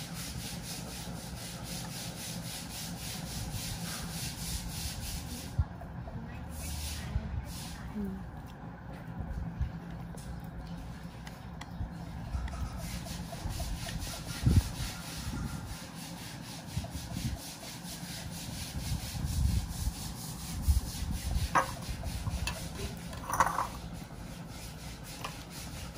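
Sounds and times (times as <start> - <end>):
handling and rubbing at table: 12.1 - 25.9.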